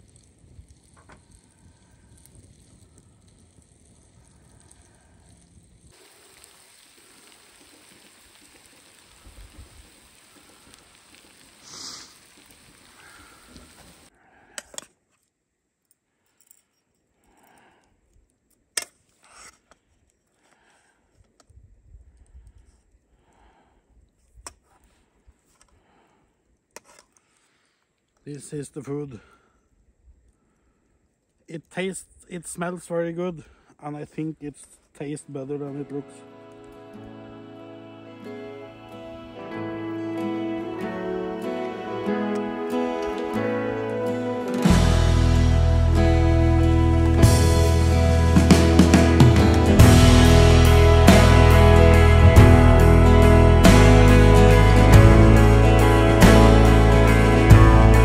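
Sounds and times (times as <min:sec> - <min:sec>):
meat frying in a pan: 0:00.0 - 0:14.1.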